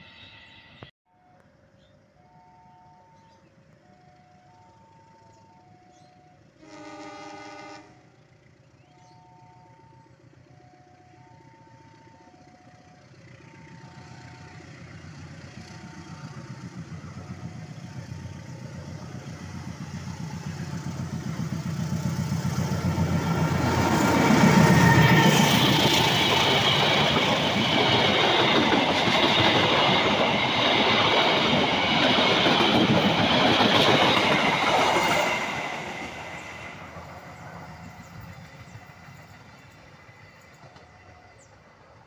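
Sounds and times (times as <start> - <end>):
diesel locomotive engine: 0.0 - 42.0
two-tone warning chime: 0.7 - 6.5, 8.8 - 14.7
train horn blast: 6.5 - 8.2.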